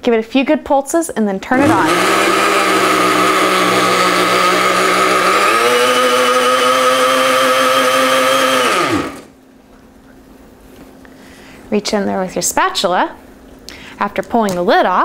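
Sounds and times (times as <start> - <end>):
blender running: 1.6 - 9.3.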